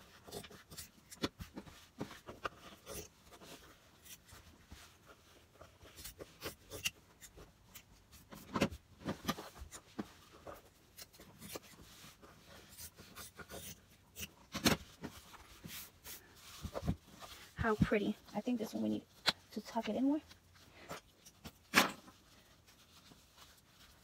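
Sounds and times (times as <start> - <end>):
fabric rubbing and rustling: 0.0 - 24.0.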